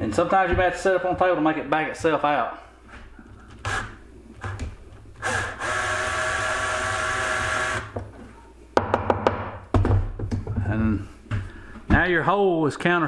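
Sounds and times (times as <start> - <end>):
cordless drill whining: 3.5 - 4.6, 5.2 - 8.0.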